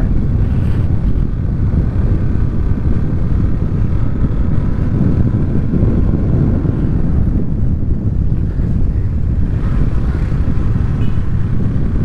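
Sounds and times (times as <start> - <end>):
motorcycle engine running: 0.0 - 12.0
wind rush on microphone: 0.0 - 12.0.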